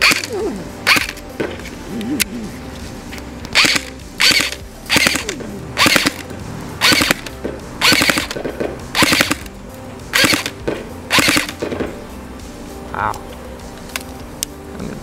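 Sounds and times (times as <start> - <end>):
airsoft gun firing bursts: 0.0 - 1.5, 3.5 - 9.5, 10.1 - 12.0.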